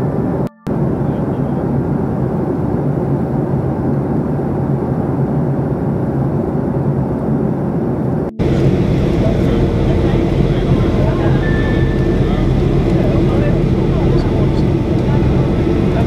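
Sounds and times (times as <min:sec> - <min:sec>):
jet engines droning: 0:00.0 - 0:16.0
low hum: 0:00.0 - 0:16.0.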